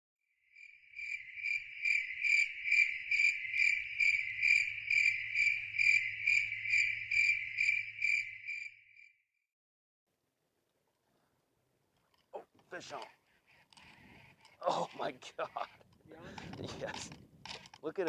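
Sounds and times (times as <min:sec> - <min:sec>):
cricket chirping: 0:00.4 - 0:09.2.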